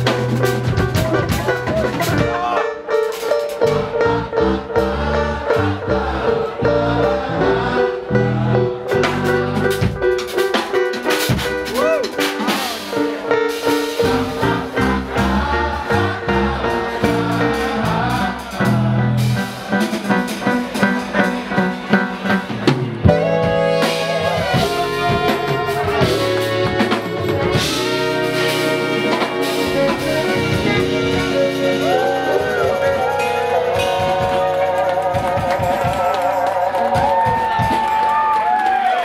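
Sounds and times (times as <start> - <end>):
electric bass: 0.0 - 2.3, 3.6 - 10.4, 13.6 - 36.0
drum kit: 0.0 - 39.0
horns playing: 11.4 - 37.2.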